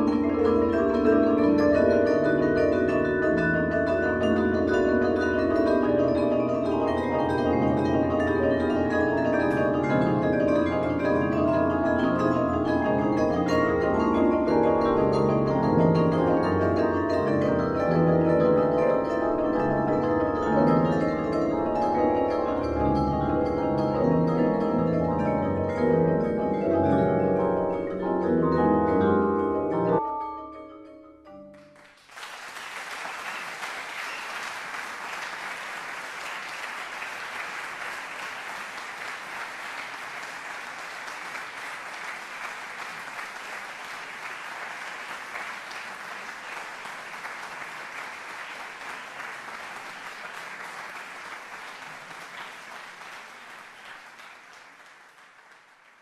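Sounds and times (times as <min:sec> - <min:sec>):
marimba ensemble playing: 0:00.0 - 0:31.7
audience applauding: 0:31.5 - 0:56.0.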